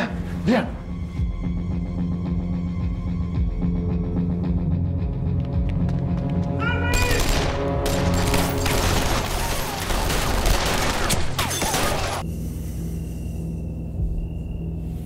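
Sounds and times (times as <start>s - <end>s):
dramatic music: 0.0s - 15.0s
rapid gunfire: 7.2s - 11.4s.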